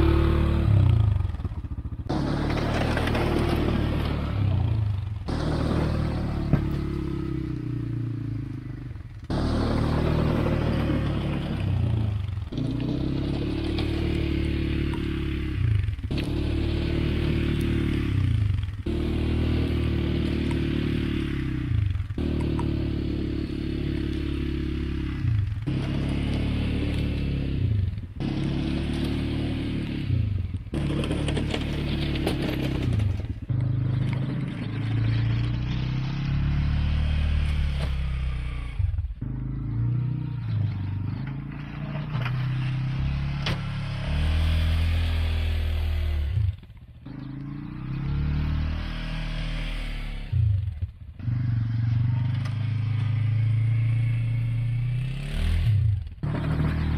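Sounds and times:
atv engine under load: 0.0 - 56.9
plow blade scraping and clattering: 2.1 - 7.7, 8.6 - 22.7, 30.5 - 36.6, 40.6 - 45.4, 56.2 - 56.9.

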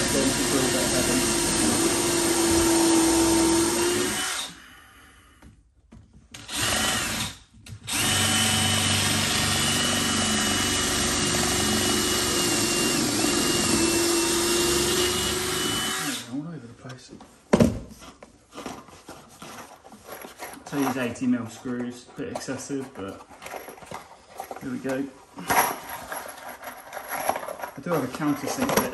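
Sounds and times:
cordless drill boring into wood: 0.0 - 4.6, 6.4 - 16.3.

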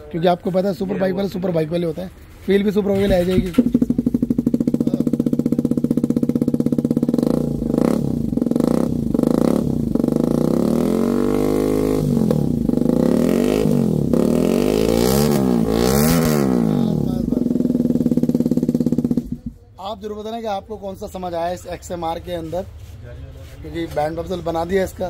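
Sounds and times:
motorcycle engine idling and revving: 2.9 - 20.0.

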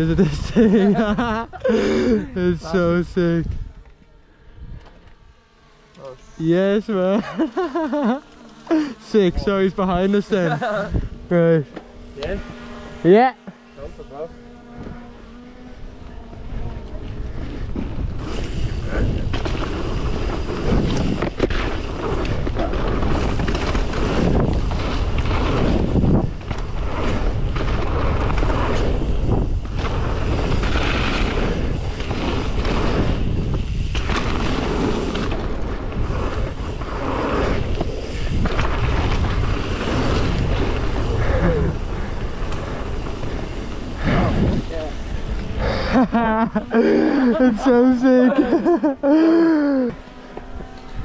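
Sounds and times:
wind buffeting microphone: 10.9 - 11.3, 14.6 - 47.6
bike knocking and rattling: 14.1 - 46.8.

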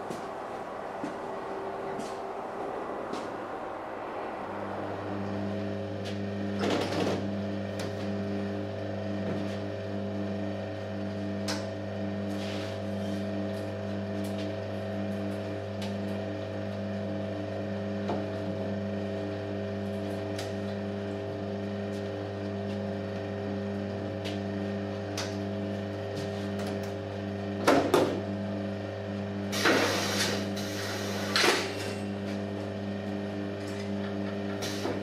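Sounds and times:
machine humming: 0.0 - 35.0
loud hissing bursts: 29.5 - 31.4.

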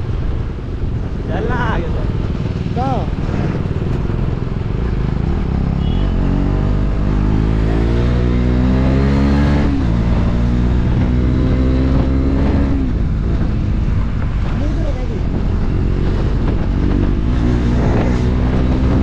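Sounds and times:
wind and road noise: 0.0 - 19.0
motorcycle engine accelerating: 2.0 - 19.0.

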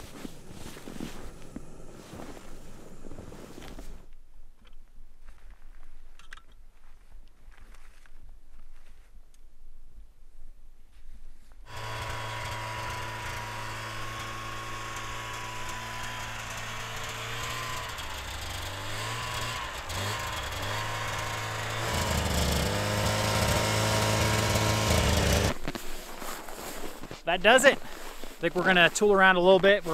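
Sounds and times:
snowmobile engine running: 0.0 - 4.0, 11.7 - 25.8, 28.4 - 29.9.

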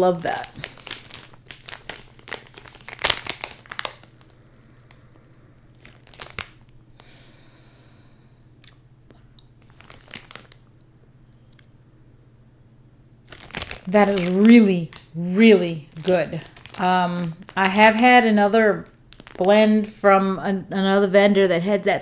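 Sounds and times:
plastic bag crinkling: 0.0 - 5.1, 5.7 - 6.8, 9.6 - 10.7, 13.2 - 20.1.

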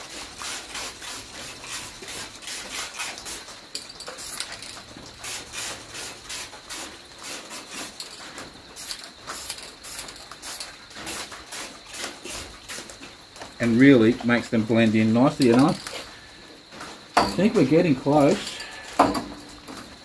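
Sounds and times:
rubbing on wet painted steel: 0.0 - 16.2.

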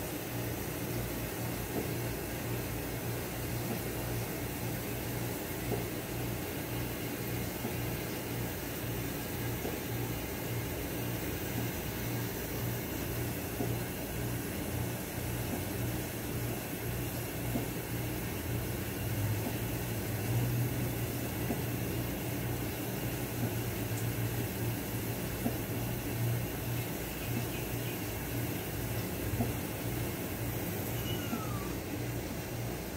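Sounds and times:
low machine hum: 0.0 - 32.9.

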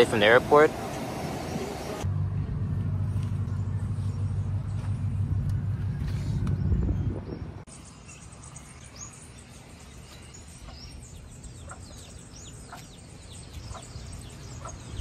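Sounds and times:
chicks peeping: 10.6 - 15.0.

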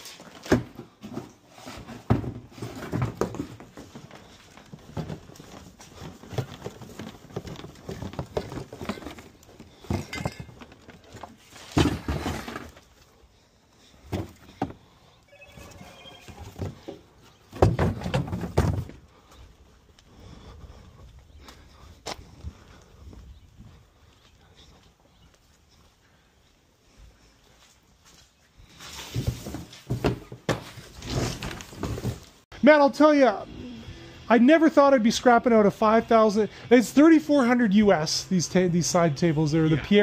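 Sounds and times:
knocks and rustling: 0.2 - 13.0, 16.2 - 19.1
footsteps: 13.8 - 32.4.

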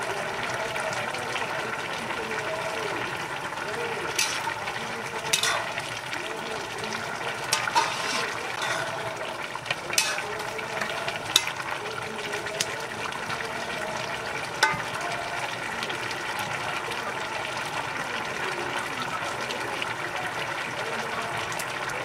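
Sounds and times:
liquid bubbling: 0.0 - 22.0
metal ladle knocking on pan: 4.1 - 4.6, 5.2 - 5.9, 7.5 - 9.2, 9.9 - 11.7, 14.6 - 15.0.

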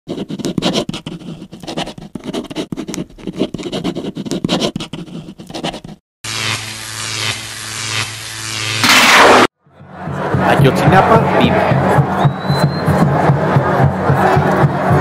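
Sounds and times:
pen scratching on paper: 0.1 - 6.0
steady low hum: 6.3 - 10.4.

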